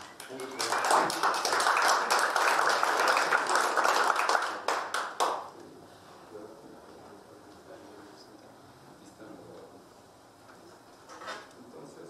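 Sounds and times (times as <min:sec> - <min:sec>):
audience applause: 0:00.0 - 0:05.5.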